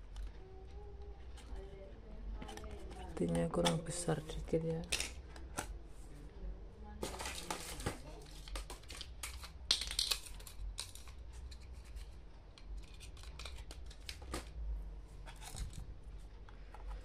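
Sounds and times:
small clicks and scrapes: 0:08.3 - 0:14.4, 0:15.2 - 0:17.0.

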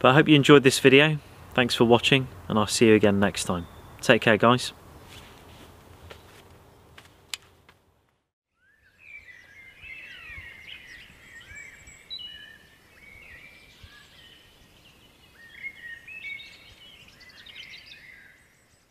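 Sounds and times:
songbirds singing: 0:01.1 - 0:04.6, 0:08.5 - 0:18.9.

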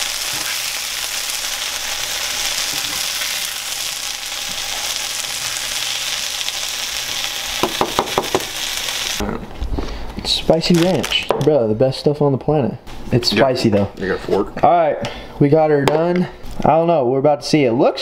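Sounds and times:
meat sizzling in a frying pan: 0:00.0 - 0:09.2
sharp knocks: 0:07.6 - 0:08.5.

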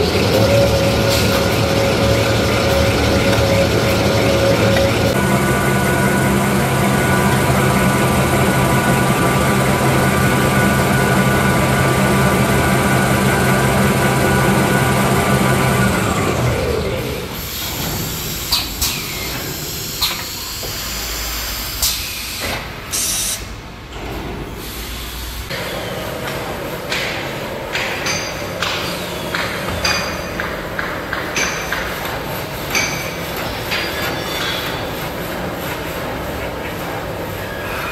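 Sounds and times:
machine running noise: 0:00.0 - 0:22.6.

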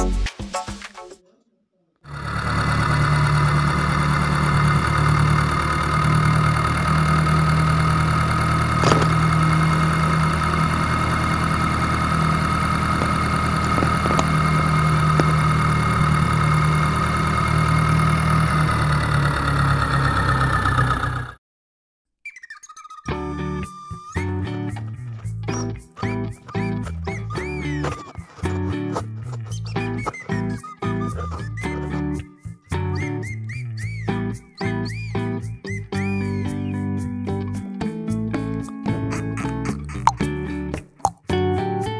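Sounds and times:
tractor engine running: 0:02.1 - 0:21.4, 0:34.9 - 0:36.7.

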